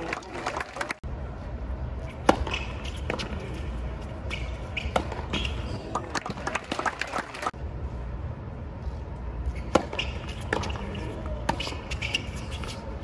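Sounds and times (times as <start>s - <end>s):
tennis ball bouncing on court: 2.2s - 3.4s, 4.3s - 6.9s, 9.6s - 12.8s.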